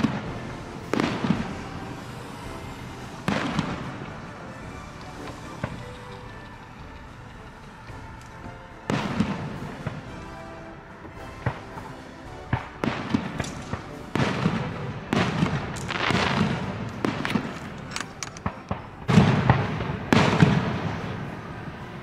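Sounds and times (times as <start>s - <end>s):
fireworks shells bursting: 0.0s - 21.9s
sharp firework pops and cracks: 11.4s - 20.8s.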